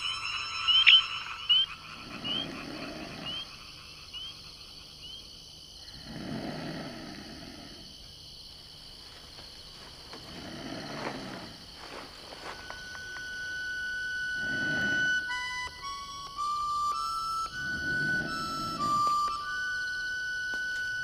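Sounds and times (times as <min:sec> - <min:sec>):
short high chirps: 0:00.0 - 0:02.4
deep frog-like croak: 0:00.6 - 0:07.9, 0:14.3 - 0:15.3, 0:17.5 - 0:19.4.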